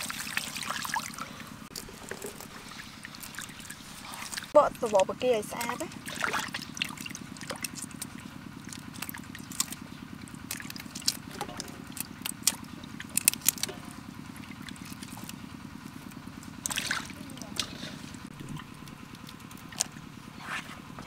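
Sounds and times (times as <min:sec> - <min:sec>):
water dripping and trickling: 0:00.0 - 0:15.4, 0:16.0 - 0:20.1
steady low hum: 0:00.0 - 0:21.0
shrimp shells clicking and crackling: 0:10.4 - 0:13.8.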